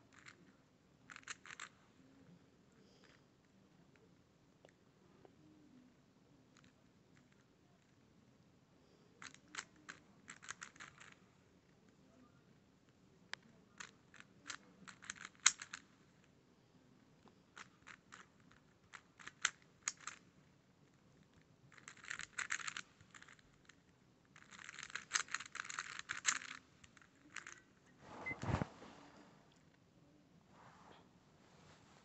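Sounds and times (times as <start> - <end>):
plastic puzzle cube clicks: 13.8 - 15.8, 18.9 - 20.2, 21.7 - 23.4, 24.4 - 26.6.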